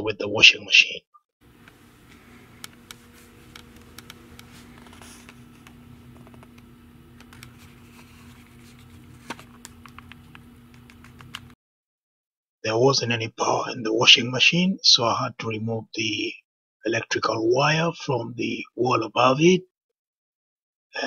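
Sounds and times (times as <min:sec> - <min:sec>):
steady low hum: 0:01.4 - 0:11.6.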